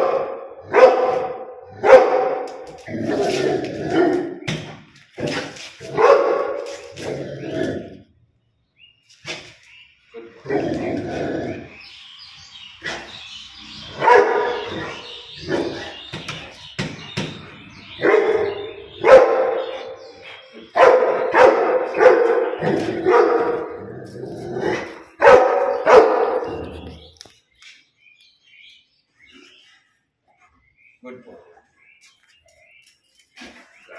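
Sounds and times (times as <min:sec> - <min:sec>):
dog barking: 0:00.0 - 0:02.6, 0:05.9 - 0:06.6, 0:14.0 - 0:15.9, 0:18.0 - 0:20.0, 0:20.7 - 0:23.8, 0:25.2 - 0:26.9.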